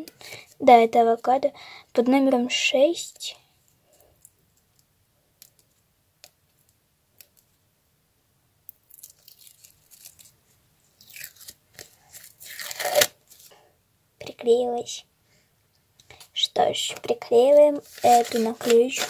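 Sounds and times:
paper sticker peeling and crinkling: 0:08.9 - 0:10.3, 0:17.6 - 0:19.0.

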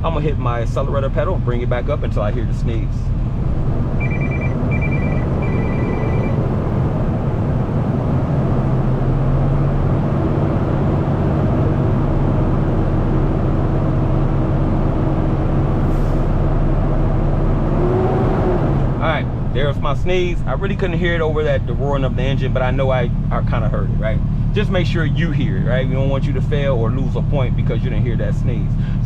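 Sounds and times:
diesel truck engine revving: 0:00.0 - 0:29.0
high-pitched beeping: 0:03.9 - 0:06.5.

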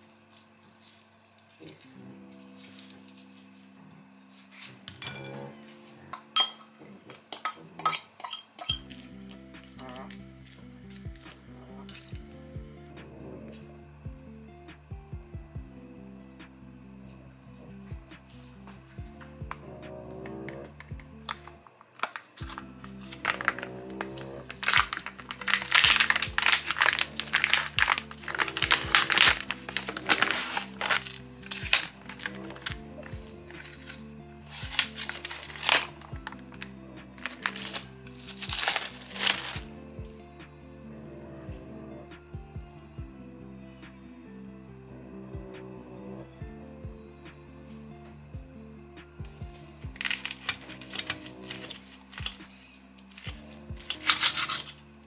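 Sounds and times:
soft background music: 0:00.0 - 0:55.0
plastic film crinkling: 0:20.3 - 0:39.7, 0:49.6 - 0:54.8.

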